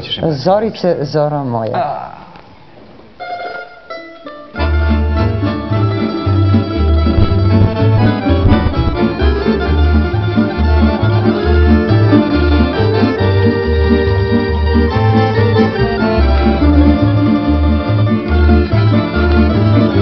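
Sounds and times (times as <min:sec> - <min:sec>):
string band instrumental: 0:03.2 - 0:20.0
rhythmic bass line: 0:05.8 - 0:20.0.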